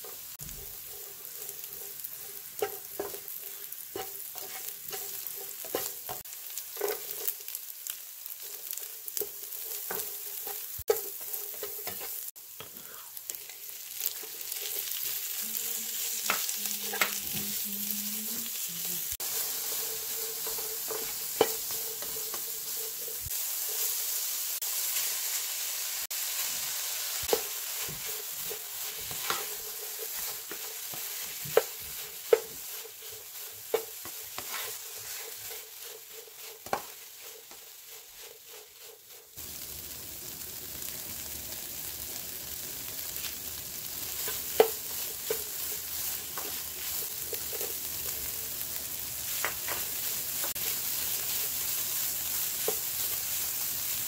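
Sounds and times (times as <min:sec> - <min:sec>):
meat sizzling in a frying pan: 0:00.0 - 0:54.0
plastic spatula scraping: 0:27.3 - 0:39.4.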